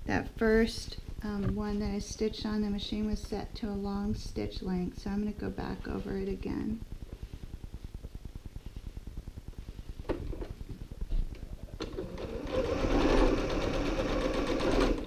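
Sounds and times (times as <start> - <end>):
sewing machine stitching: 11.8 - 15.0.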